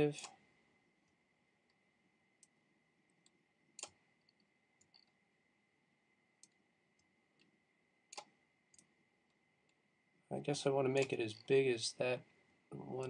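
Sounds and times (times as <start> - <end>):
computer mouse clicks: 3.2 - 5.2, 6.4 - 7.5, 8.1 - 9.8, 11.0 - 11.5.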